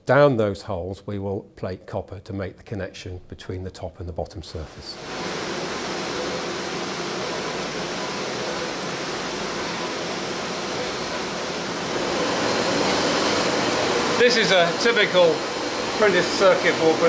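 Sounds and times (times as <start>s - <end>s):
drilling machines humming: 5.0s - 17.0s.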